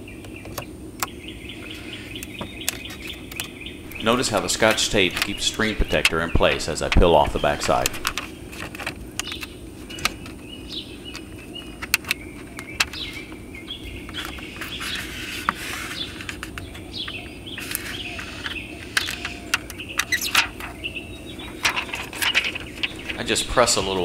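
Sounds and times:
bird chirps: 1.1s - 8.4s, 22.3s - 24.0s
low hum: 3.8s - 8.3s, 22.8s - 24.0s.

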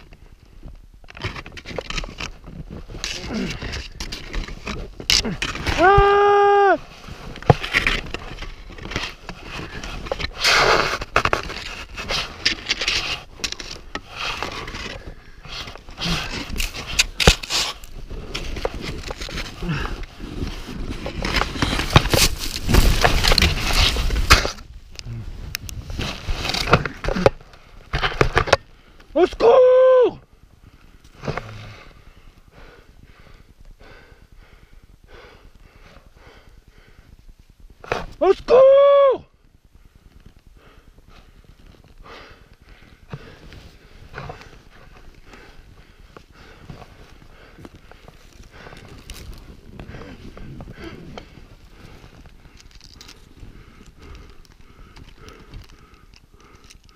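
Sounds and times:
skis scraping and crunching snow: 1.2s - 28.6s, 41.2s - 56.9s
person breathing hard: 30.6s - 37.2s, 39.8s - 56.9s.

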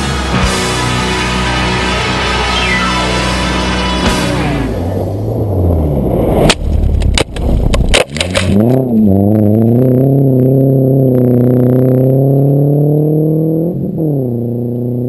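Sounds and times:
car rushing over gravel: 0.0s - 9.7s
car engine drone: 0.0s - 15.0s
sharp cracks: 4.2s - 8.8s.

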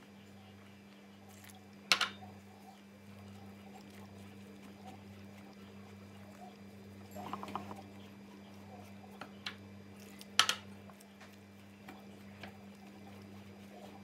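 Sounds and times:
steady low hum: 0.0s - 14.0s
kitchen clicks and knocks: 10.4s - 10.6s.

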